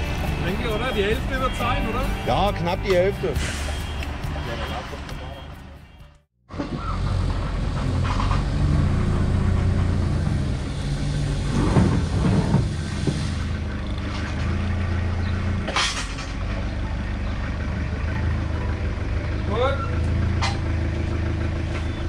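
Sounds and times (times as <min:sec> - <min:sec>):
forklift engine running: 0:06.5 - 0:22.0.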